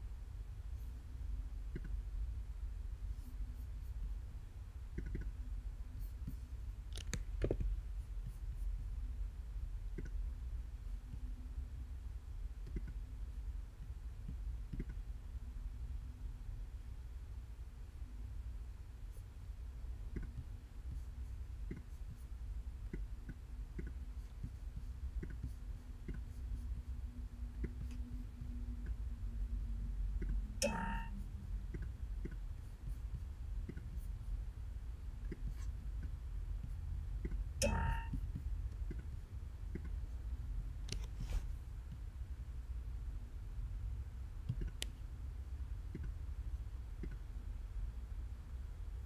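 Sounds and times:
low hum: 0.0 - 49.0
computer mouse clicking: 1.7 - 2.0, 4.9 - 5.4, 6.0 - 8.4, 9.9 - 10.2, 12.6 - 13.0, 13.8 - 15.0, 20.1 - 21.0, 22.8 - 26.4, 31.7 - 34.1, 35.2 - 40.0, 40.8 - 41.2, 44.4 - 45.0, 47.0 - 47.3.

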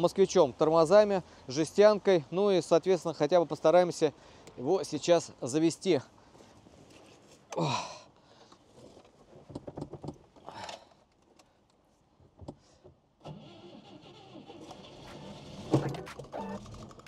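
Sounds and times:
car engine starting and running: 13.2 - 17.0
clicks and rattles: 15.1 - 17.0.

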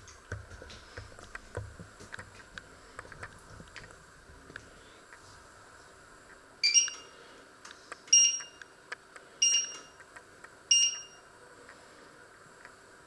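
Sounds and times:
hob touch panel beeping: 6.6 - 7.1, 8.1 - 8.6, 9.4 - 10.0, 10.7 - 11.2.

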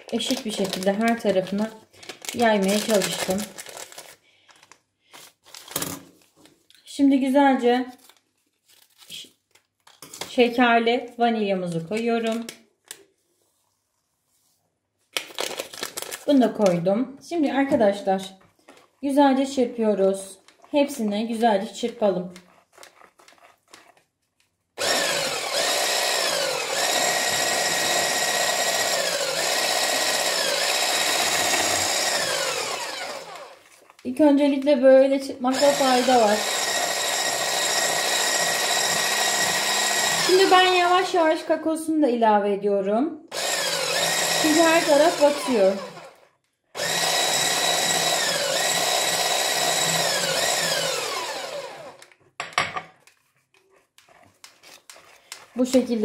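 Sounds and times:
stick blender motor whine: 24.8 - 33.8, 35.4 - 41.3, 43.3 - 52.1.

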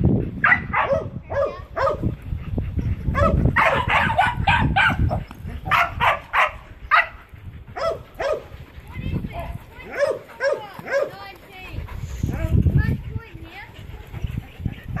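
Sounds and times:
dogs barking: 0.4 - 2.1, 2.7 - 12.5.

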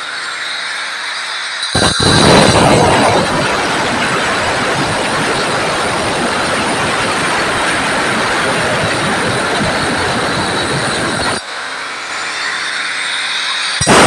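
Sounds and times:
angle grinder cutting stone: 12.0 - 14.0.

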